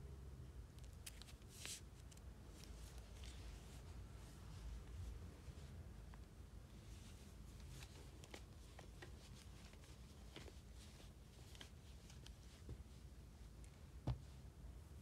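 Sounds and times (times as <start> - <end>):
hands rustling plush toy: 1.2 - 14.4.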